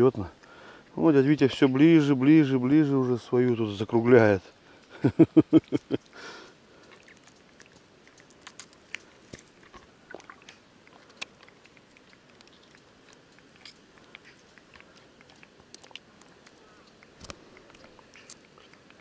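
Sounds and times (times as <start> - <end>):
water drips and splashes: 6.8 - 19.0.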